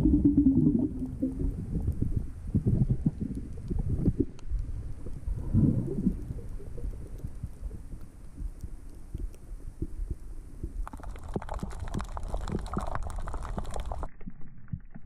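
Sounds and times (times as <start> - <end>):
underwater rumble of moving water: 0.0 - 15.0
crackle of sharp clicks: 3.1 - 15.0.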